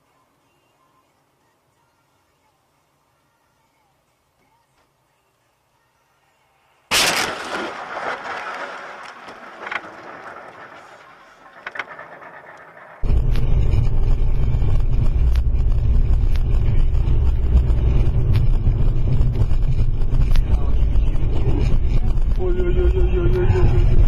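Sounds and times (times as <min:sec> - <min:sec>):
car crash scraping and rattling: 0:06.9 - 0:13.8
road noise inside moving car: 0:13.0 - 0:24.0.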